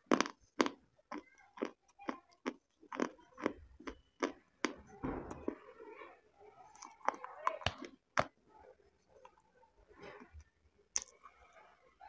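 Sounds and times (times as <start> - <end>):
chewing with lip smacks: 0.0 - 5.6.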